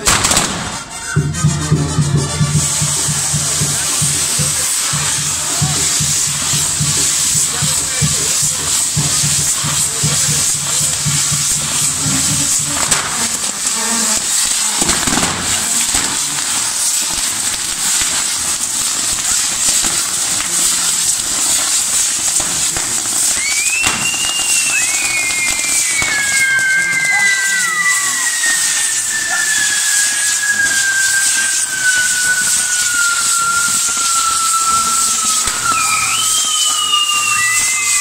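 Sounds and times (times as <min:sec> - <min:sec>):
fireworks crackles and pops: 0:00.0 - 0:38.0
fireworks hissing: 0:00.0 - 0:38.0
high falling whistles: 0:23.2 - 0:38.0.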